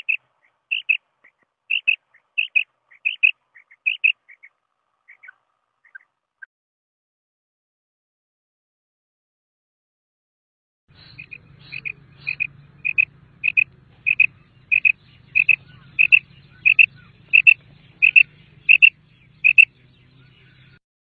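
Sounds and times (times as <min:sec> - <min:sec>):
quail calling: 0:00.0 - 0:06.1, 0:10.9 - 0:20.8
faint low hum: 0:10.9 - 0:20.8.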